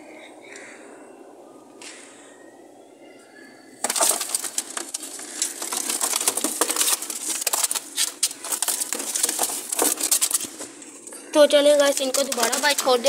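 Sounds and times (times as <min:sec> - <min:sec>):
rustling and scraping: 0:03.8 - 0:13.0.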